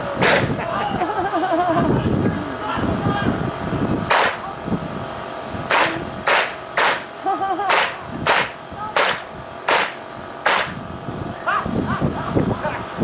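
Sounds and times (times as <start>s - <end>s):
sharp gunshots: 0.2s - 0.6s, 4.1s - 4.4s, 5.7s - 7.1s, 7.7s - 10.8s.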